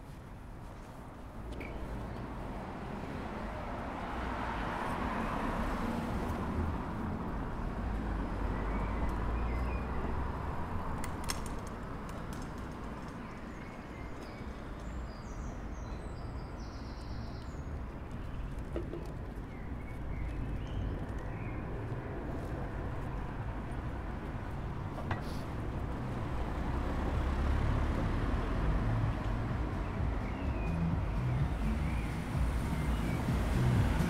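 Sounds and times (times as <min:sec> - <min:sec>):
road traffic hum: 0:00.0 - 0:34.0
vehicle passing rumble: 0:20.9 - 0:34.0.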